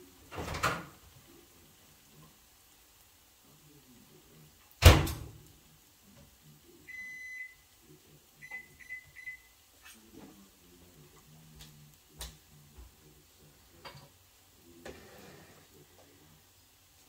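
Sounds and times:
kitchen appliance beeping: 6.9s - 7.6s, 8.4s - 9.6s.

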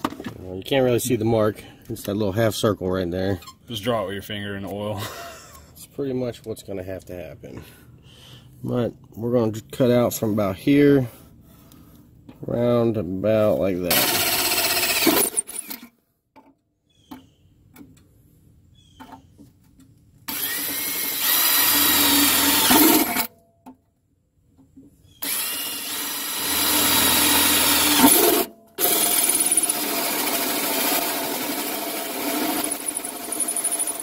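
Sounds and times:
drill cutting through sheet metal: 13.9s - 15.7s, 20.3s - 23.3s, 25.2s - 34.0s.

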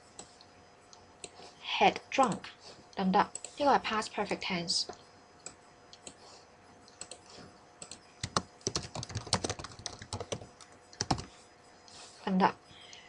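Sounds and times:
computer keyboard typing: 6.9s - 11.3s.

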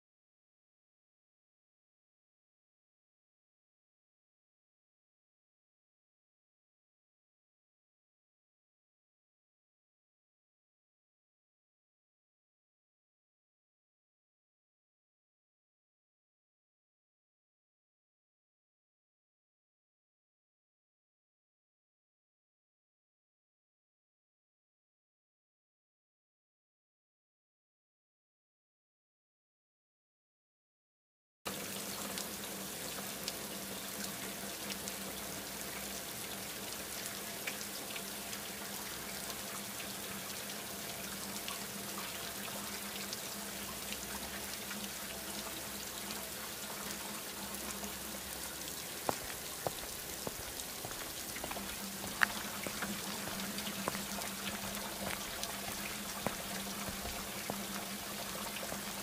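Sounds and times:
rain-like hiss: 31.5s - 59.0s.

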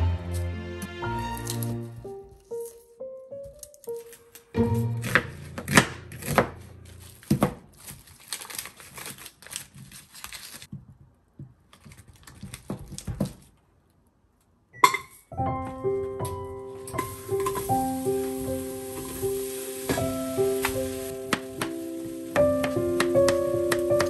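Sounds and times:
background music: 0.0s - 7.3s, 15.4s - 24.0s
onion skin crinkling: 2.3s - 10.7s.

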